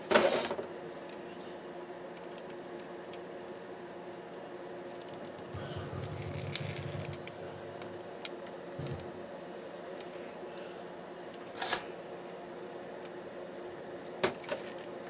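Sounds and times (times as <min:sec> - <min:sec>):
steady low hum: 0:00.7 - 0:15.0
dull rumbling handling noise: 0:05.2 - 0:09.4.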